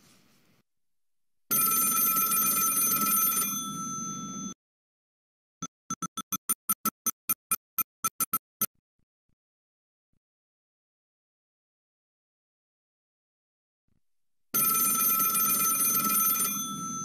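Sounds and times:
electronic telephone ringtone: 0:01.5 - 0:04.6, 0:14.6 - 0:17.0.

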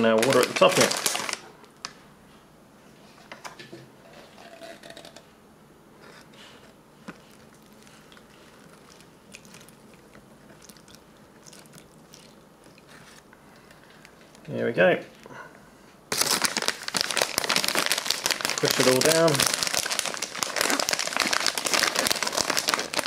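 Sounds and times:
plastic bag crinkling: 0:00.0 - 0:01.6, 0:16.1 - 0:23.0.

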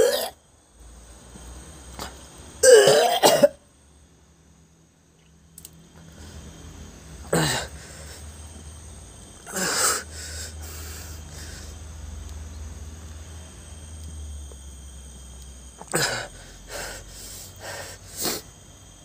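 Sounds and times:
man coughing harshly: 0:02.6 - 0:03.6, 0:07.3 - 0:07.7.

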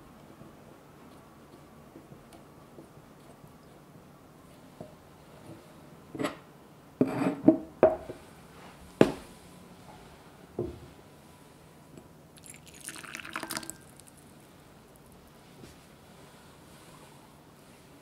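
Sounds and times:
water trickling into bowl: 0:12.4 - 0:14.4.

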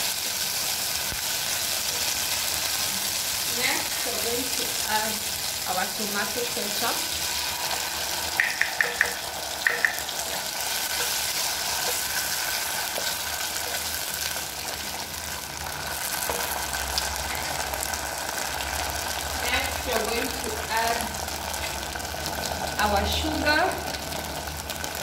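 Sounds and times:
food sizzling in a frying pan: 0:00.0 - 0:25.0
wooden spoon stirring: 0:07.2 - 0:17.6.

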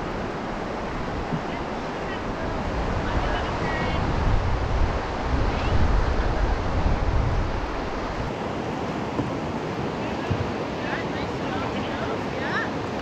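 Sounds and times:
wind rumble on microphone: 0:00.0 - 0:08.4
river rapids rushing: 0:00.0 - 0:13.0.

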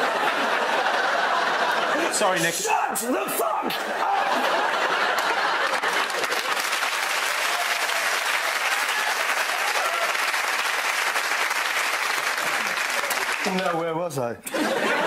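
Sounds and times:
studio audience applauding: 0:04.0 - 0:14.0.

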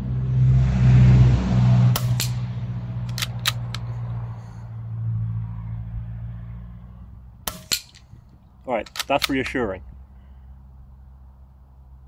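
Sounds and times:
passing vehicle hum: 0:00.0 - 0:12.0
air rifle clicks: 0:02.0 - 0:02.4, 0:03.0 - 0:04.0, 0:07.5 - 0:09.6.

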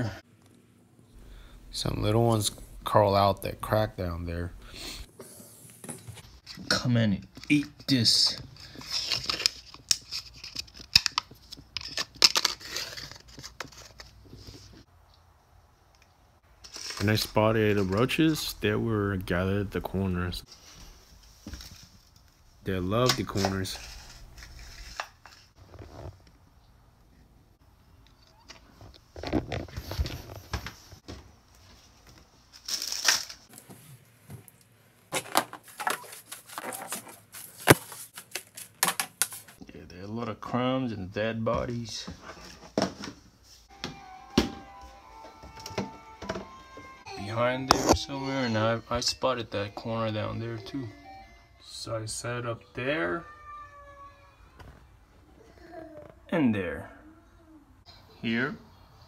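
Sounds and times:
plastic rustling: 0:35.1 - 0:39.6.

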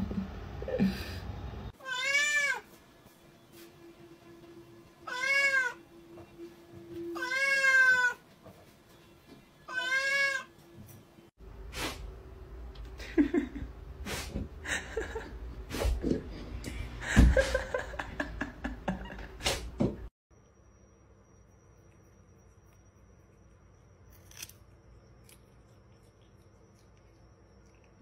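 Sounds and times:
cat meowing: 0:01.8 - 0:02.6, 0:05.1 - 0:05.8, 0:07.2 - 0:08.2, 0:09.7 - 0:10.5
faint steady hum: 0:20.3 - 0:28.0.

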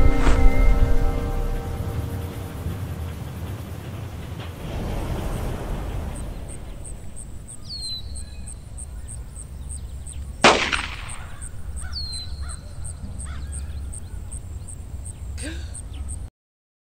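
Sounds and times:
low rumble: 0:00.0 - 0:16.3
bird whistled calls: 0:05.2 - 0:10.2, 0:10.8 - 0:14.3
sharp loud bang: 0:10.4 - 0:11.6.

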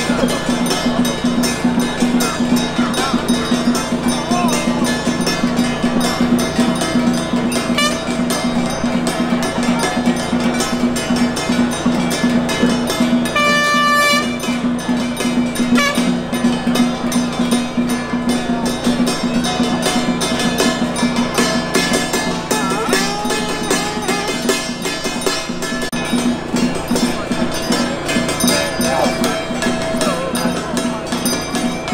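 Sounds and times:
hand bell ringing rapidly: 0:00.0 - 0:31.9
horn-like toot: 0:07.7 - 0:08.4, 0:13.4 - 0:14.4, 0:15.8 - 0:16.2.

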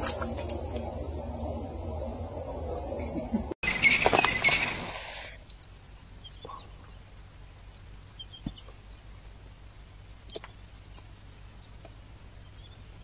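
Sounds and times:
low steady hum: 0:00.0 - 0:03.6
faint bird chirps: 0:03.0 - 0:09.1.

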